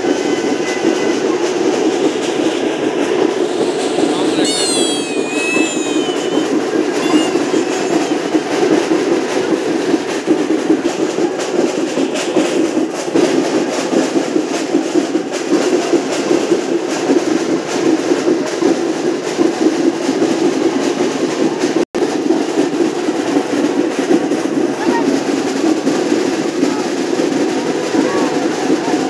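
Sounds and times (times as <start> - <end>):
dense crowd din: 0.0 - 29.0
quick percussive beats: 0.0 - 29.0.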